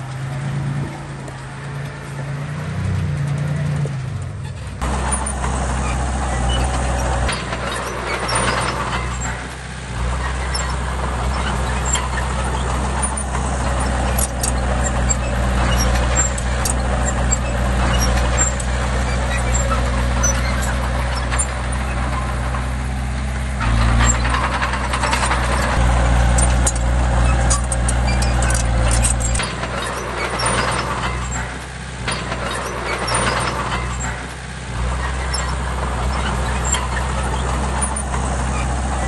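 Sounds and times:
diesel engine droning: 0:00.0 - 0:39.0.

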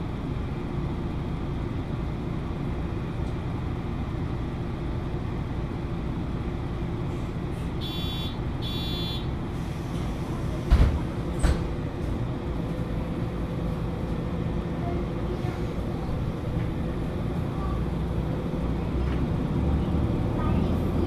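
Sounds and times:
bus engine idling: 0:00.0 - 0:21.0
short electronic beeps: 0:07.8 - 0:09.3.

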